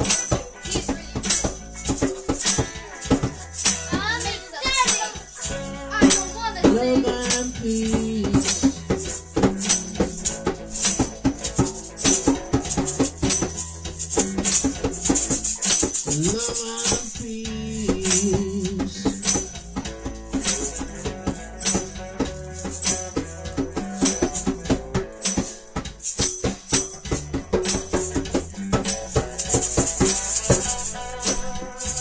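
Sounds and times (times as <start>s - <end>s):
bass notes: 0.0s - 32.0s
electric guitar notes: 0.0s - 32.0s
hand drum: 0.0s - 32.0s
rattling shaker: 0.0s - 32.0s.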